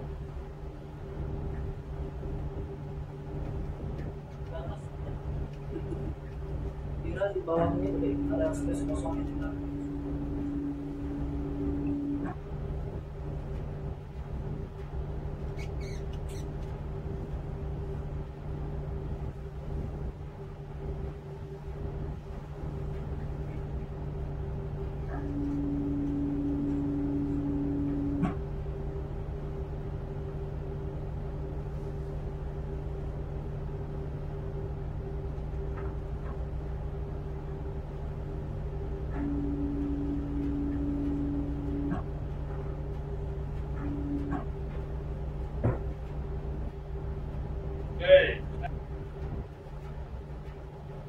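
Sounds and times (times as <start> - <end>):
diesel engines droning: 0.0 - 51.0
steady tone: 6.8 - 13.5, 17.1 - 31.7, 37.6 - 49.5
faint short squeaks: 15.5 - 16.7.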